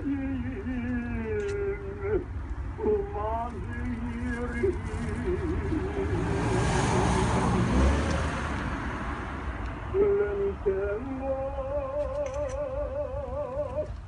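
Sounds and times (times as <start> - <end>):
person singing with vibrato: 0.0 - 7.8, 9.8 - 14.0
rush of noise: 1.7 - 10.0.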